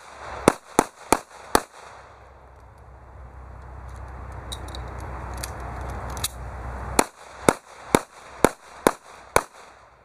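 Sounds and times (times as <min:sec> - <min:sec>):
pistol shots: 0:00.0 - 0:02.0, 0:07.0 - 0:09.8
steady rumbling hiss: 0:00.0 - 0:10.0.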